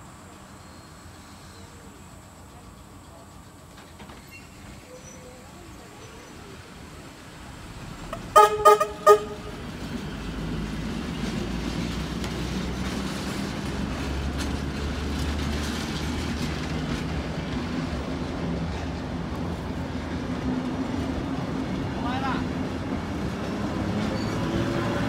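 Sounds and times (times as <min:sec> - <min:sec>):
train running rumble: 0:00.0 - 0:25.0
train horn toots: 0:08.1 - 0:09.7.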